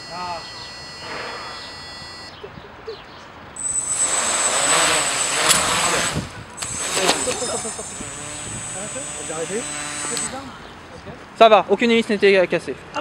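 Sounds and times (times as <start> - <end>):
drone knocking over: 0.0 - 2.3, 3.6 - 10.6
quadcopter propellers whirring: 0.0 - 2.4, 3.6 - 11.4.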